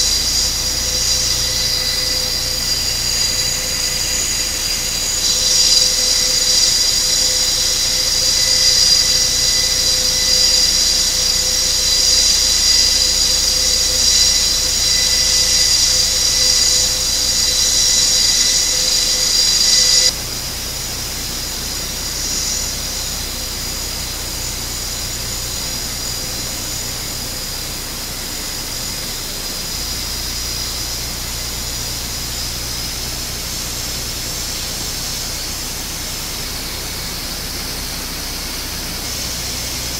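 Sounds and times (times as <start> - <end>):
turboprop engines running: 0.0 - 39.9.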